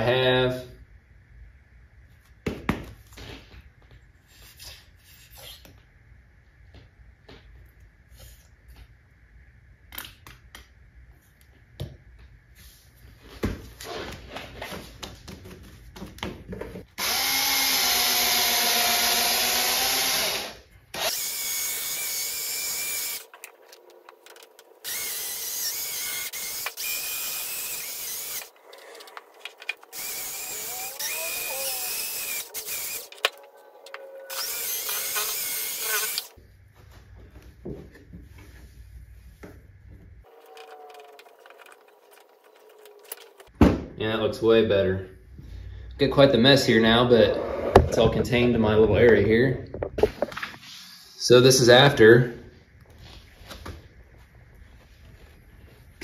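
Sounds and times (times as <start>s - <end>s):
cordless drill spinning buffing pad: 17.0s - 24.0s, 24.6s - 36.4s.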